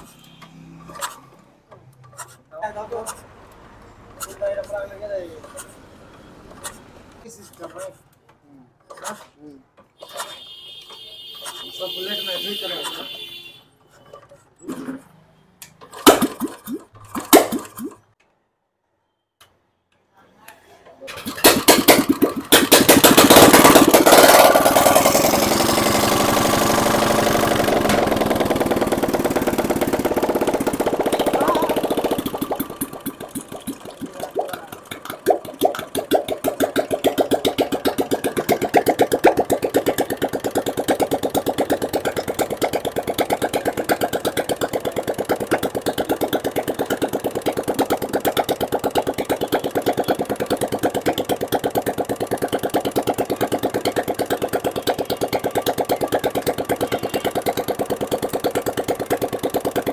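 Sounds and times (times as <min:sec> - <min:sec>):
motorcycle engine revving and idling: 0:21.2 - 0:59.9.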